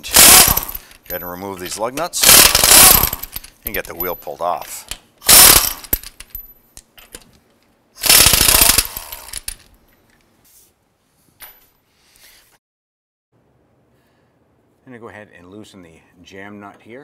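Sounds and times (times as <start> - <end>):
air impact wrench hammering: 0.0 - 1.0, 2.2 - 3.4, 5.2 - 6.1, 8.0 - 9.6.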